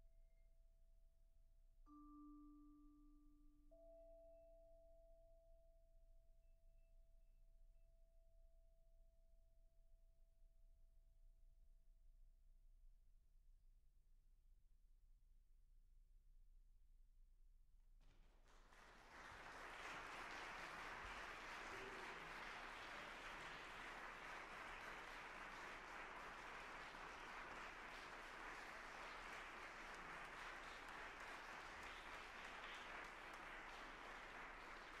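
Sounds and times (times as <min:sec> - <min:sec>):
audience applauding: 0:18.1 - 0:35.0.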